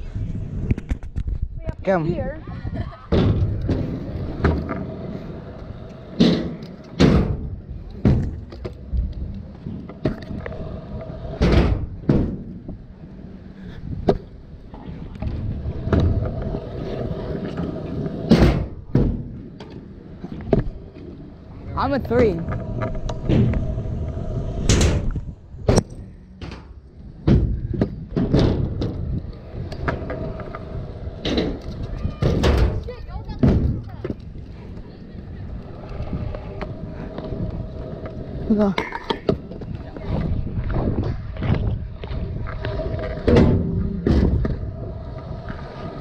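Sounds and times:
scooter wheels rolling on concrete: 0.0 - 46.0
scooter wheels clacking over joints: 24.7 - 44.8.

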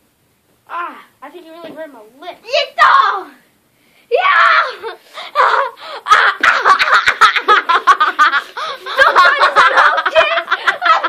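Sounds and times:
child laughing hard: 4.4 - 11.0.

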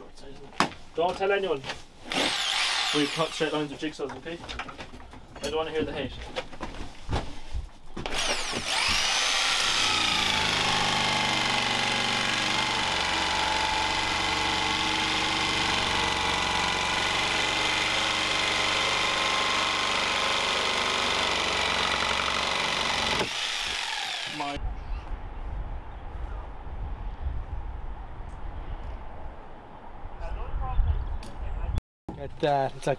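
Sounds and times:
jigsaw cutting wood: 2.1 - 3.6, 8.1 - 24.6.

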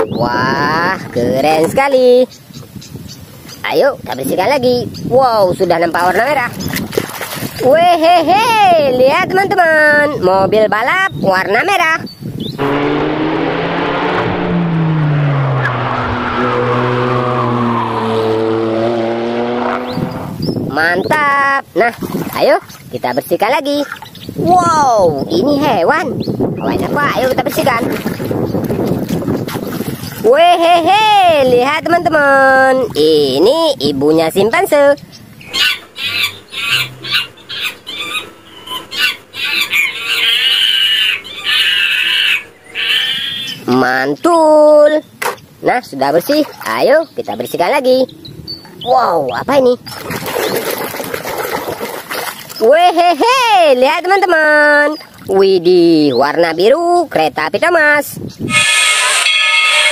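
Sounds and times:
sports car engine at speed: 12.6 - 20.6, 35.3 - 40.6
chimpanzee wavering shrieks: 35.5 - 43.6.

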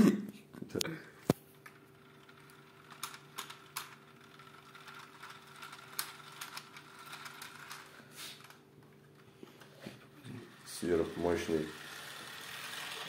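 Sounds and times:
small electric motor hum: 10.0 - 13.0.

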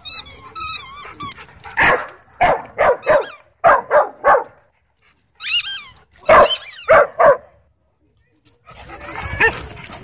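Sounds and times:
dog barking: 1.8 - 4.6, 6.3 - 7.5.

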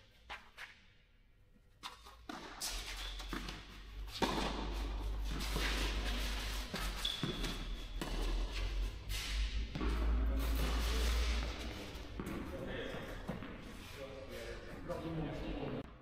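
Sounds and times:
footsteps on indoor court: 0.0 - 0.8, 1.5 - 16.0
tennis ball bouncing: 2.0 - 8.6, 9.6 - 10.7, 11.7 - 12.6.

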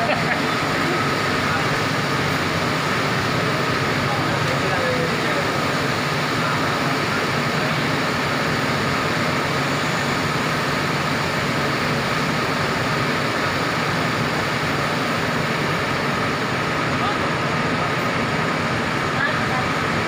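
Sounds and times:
coach diesel engine idling: 0.0 - 20.0.

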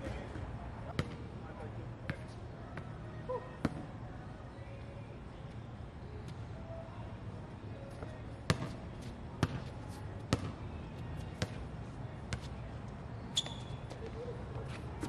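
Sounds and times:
basketball bouncing on hard court: 9.4 - 9.6, 10.3 - 10.5.

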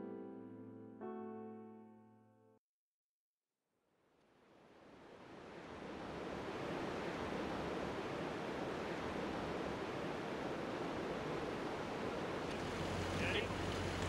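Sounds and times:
river water rushing: 4.8 - 14.0.

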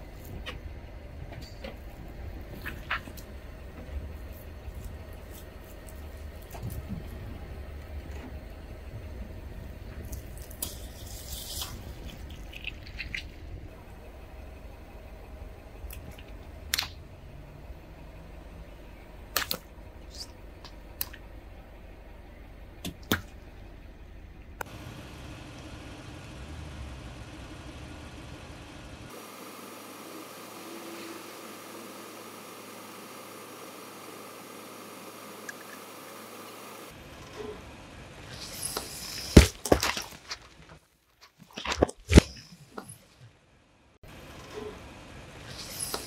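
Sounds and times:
low steady rumble: 0.0 - 29.2
objects cracking under tyre: 38.4 - 43.0.

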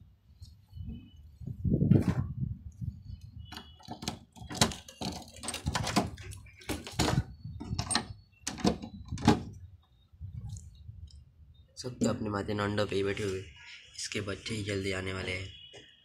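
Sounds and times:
padlock clicks and clanks: 3.5 - 9.5
wooden door pulled open: 3.5 - 9.5.

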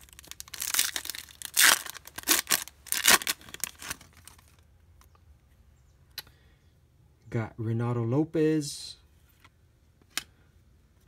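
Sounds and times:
foil wrapper tearing and crinkling: 0.0 - 4.6.

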